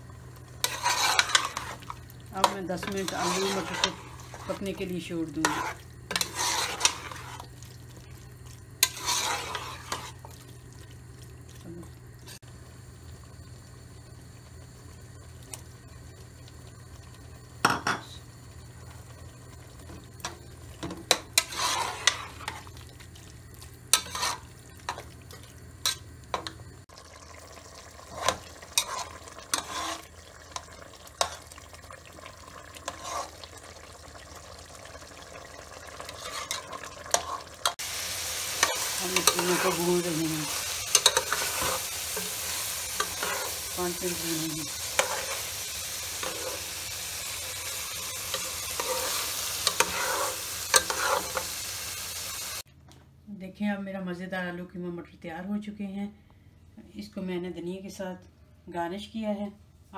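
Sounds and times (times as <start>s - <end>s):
soft sizzle: 0.0s - 52.7s
metal spoon stirring in pot: 0.6s - 7.6s, 8.8s - 10.4s, 20.2s - 22.7s, 23.9s - 26.5s, 28.0s - 31.4s, 32.7s - 33.6s, 35.9s - 37.8s, 38.5s - 46.7s, 48.0s - 51.5s.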